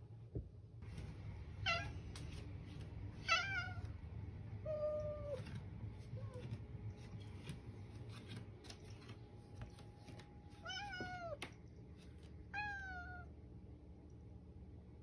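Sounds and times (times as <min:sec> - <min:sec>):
cat meowing: 0:03.2 - 0:03.9, 0:12.5 - 0:13.3.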